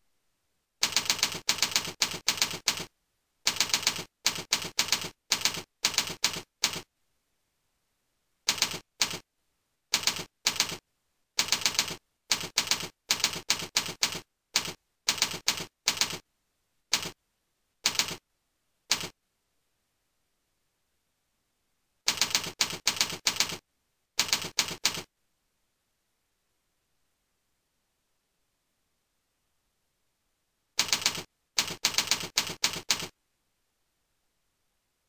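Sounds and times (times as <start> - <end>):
clacking keystrokes: 0.8 - 2.9, 3.5 - 6.9, 8.5 - 9.2, 9.9 - 10.8, 11.4 - 16.2, 16.9 - 17.2, 17.8 - 18.2, 18.9 - 19.2, 22.1 - 23.6, 24.2 - 25.1, 30.8 - 33.1.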